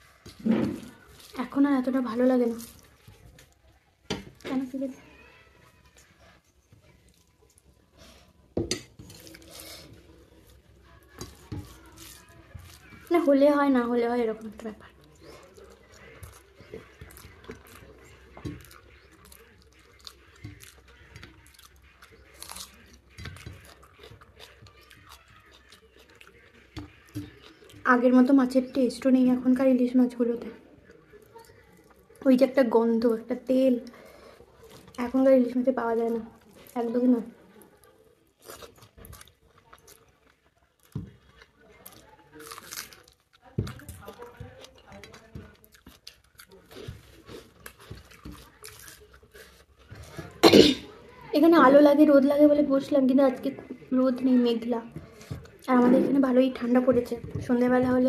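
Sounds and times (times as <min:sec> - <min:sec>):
person chewing food: 0:05.8 - 0:28.2, 0:33.9 - 0:50.4, 0:54.9 - 0:58.0.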